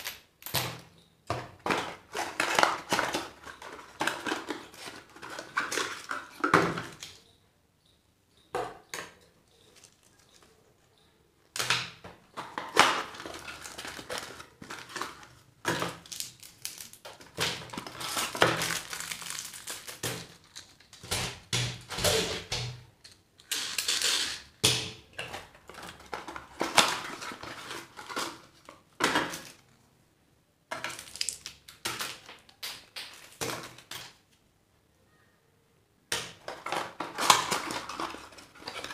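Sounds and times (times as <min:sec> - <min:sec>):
wrappers rustling and crinkling: 0:12.4 - 0:15.4, 0:16.0 - 0:21.0.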